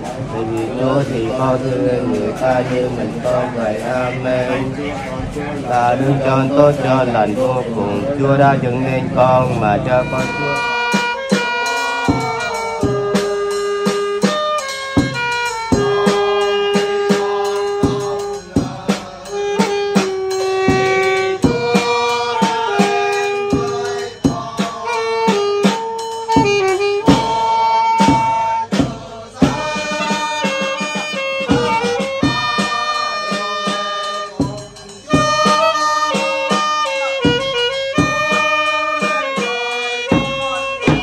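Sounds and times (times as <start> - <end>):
steady drum beat: 0.0 - 41.0
saxophones playing slow melody: 6.3 - 28.8, 29.5 - 41.0.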